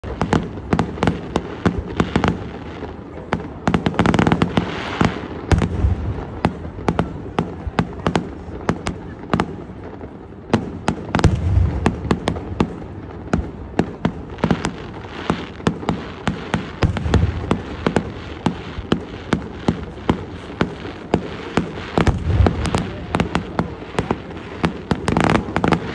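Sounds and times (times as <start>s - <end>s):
fireworks bangs: 0.0s - 25.9s
fireworks crackling: 0.0s - 25.9s
low fireworks booms: 0.0s - 25.9s.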